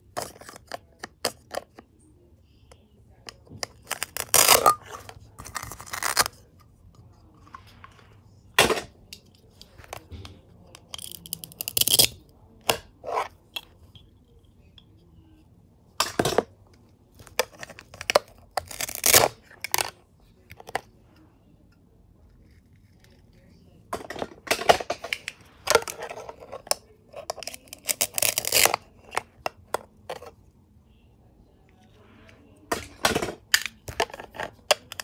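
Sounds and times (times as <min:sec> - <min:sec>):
plastic toy pieces clacking: 0:24.6 - 0:29.6.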